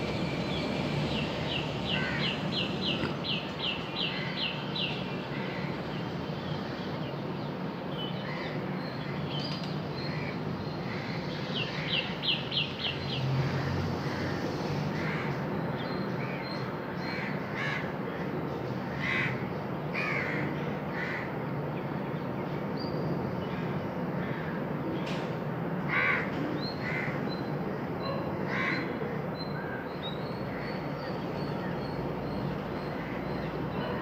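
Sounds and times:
outdoor background noise: 0.0 - 34.0
crows cawing: 1.8 - 3.2, 5.3 - 5.8, 13.5 - 15.4, 17.1 - 21.4, 25.9 - 27.2, 28.4 - 29.8.

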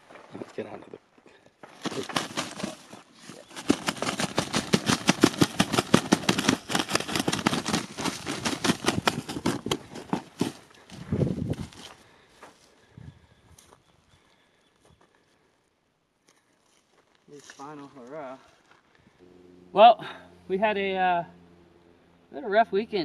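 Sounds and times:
wings beating on ground: 1.7 - 12.0.

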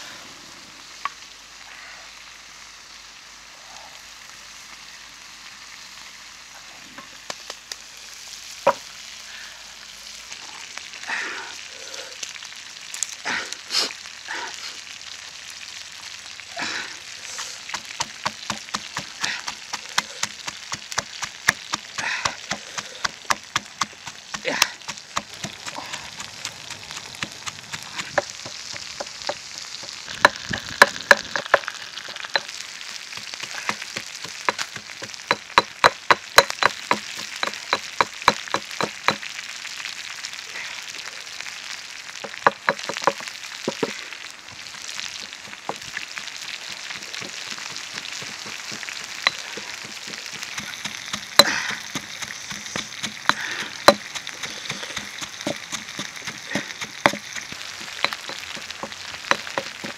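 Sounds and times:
steady hiss: 0.0 - 59.9
pestle knocking in stone mortar: 17.7 - 39.3, 42.2 - 43.9, 45.4 - 59.9.

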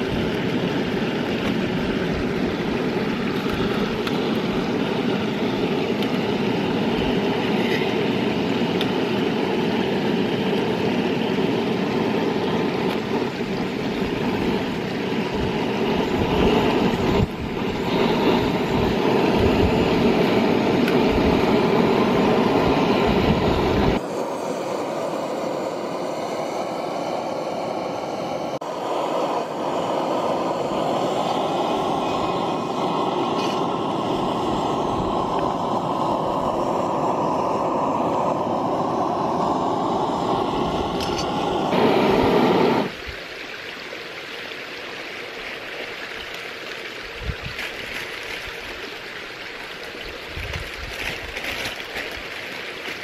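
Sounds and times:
gas stove roaring hiss: 0.0 - 43.2.

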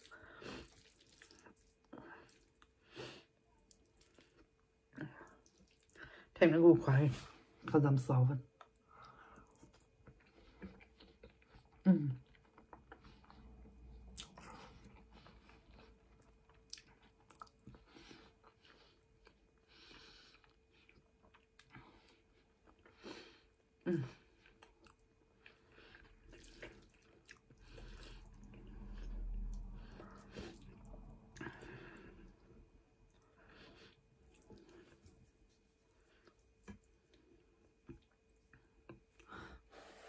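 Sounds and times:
chewing and slurping: 0.0 - 2.8, 24.4 - 32.4.

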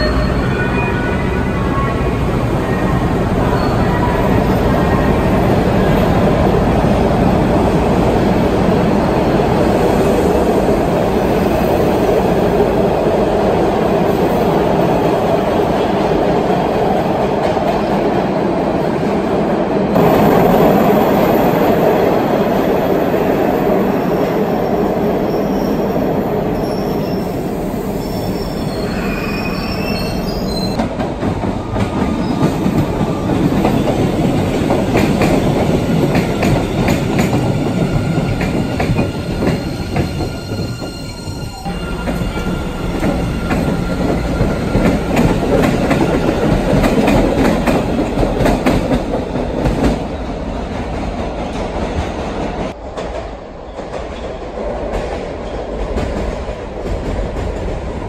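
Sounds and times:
train wheels squealing on rails: 0.0 - 6.2, 24.0 - 47.9
subway train rumbling: 0.0 - 58.0.

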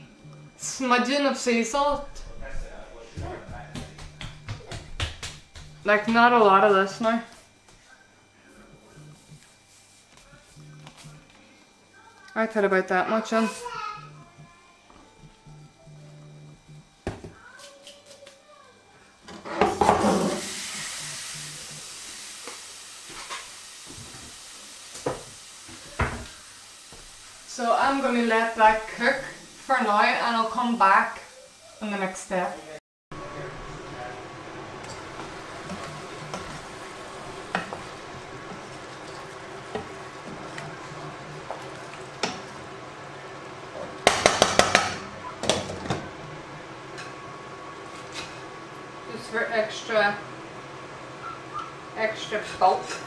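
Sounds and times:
sizzling hiss: 19.8 - 45.0
spoon and lid knocking on saucepan: 44.0 - 46.0.

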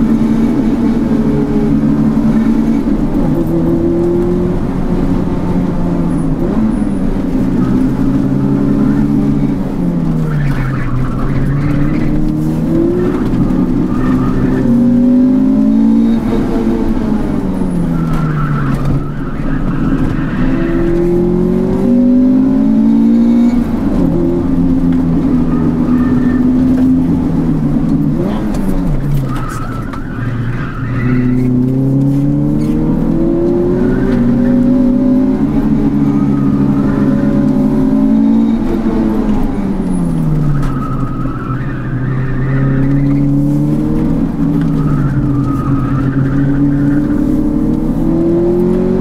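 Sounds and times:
car engine and exhaust revving: 0.0 - 49.0.

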